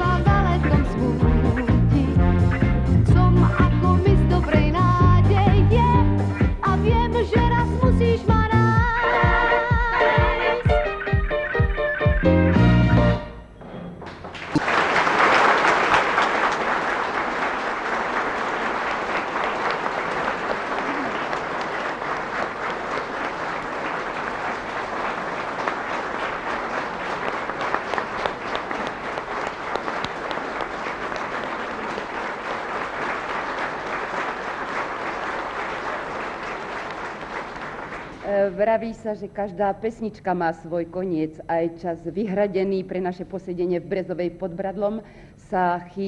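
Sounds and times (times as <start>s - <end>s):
audience applauding: 14.0s - 38.3s.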